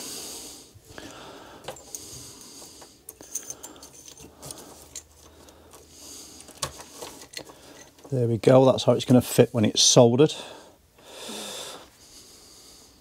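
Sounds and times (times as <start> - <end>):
small metal parts clinking: 3.1 - 8.2.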